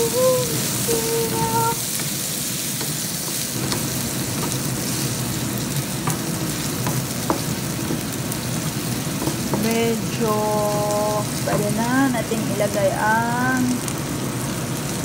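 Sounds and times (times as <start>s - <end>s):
meat and carrots sizzling in a pan: 0.0s - 15.0s
wooden spatula tapping and scraping pan: 0.9s - 5.0s, 6.0s - 8.2s, 9.2s - 9.8s, 11.4s - 11.8s.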